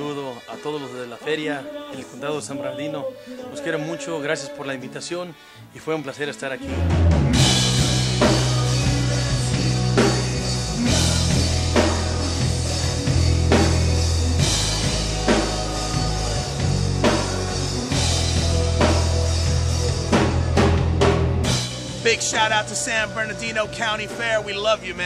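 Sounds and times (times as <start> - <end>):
electric guitar: 6.6 - 24.2
drum kit beat: 6.7 - 25.0
heavy bass line: 6.7 - 25.0.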